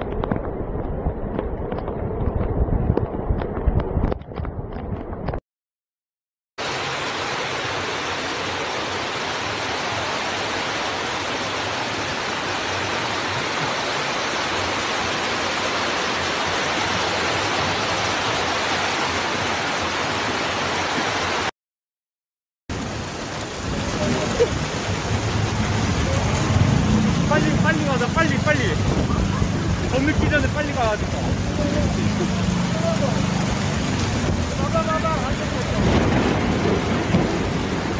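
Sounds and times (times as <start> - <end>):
flowing floodwater: 0.0 - 4.2, 6.6 - 21.5, 22.7 - 37.9
torrential rain: 0.0 - 5.4, 6.6 - 21.5, 22.7 - 37.9
churning water: 6.6 - 21.5, 22.7 - 37.9.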